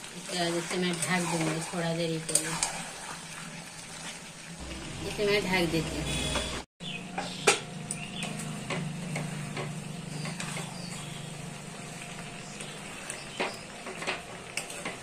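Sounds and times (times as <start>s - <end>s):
faint sizzle: 0.0s - 3.3s, 7.4s - 15.0s.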